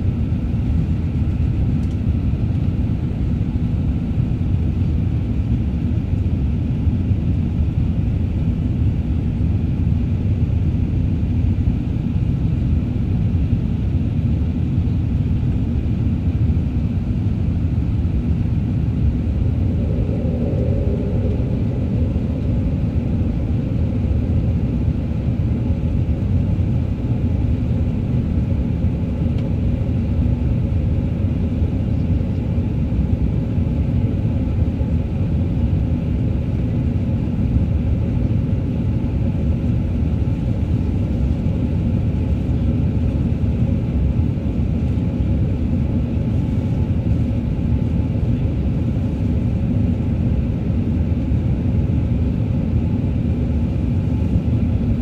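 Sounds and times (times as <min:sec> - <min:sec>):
jet engines rumbling in cabin: 0:00.0 - 0:55.0
rushing air: 0:17.6 - 0:26.8.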